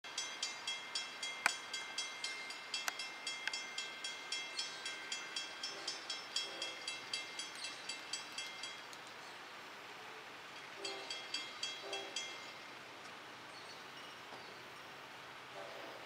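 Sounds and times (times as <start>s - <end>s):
crossing warning bell ringing: 0.0s - 9.5s, 10.4s - 12.9s.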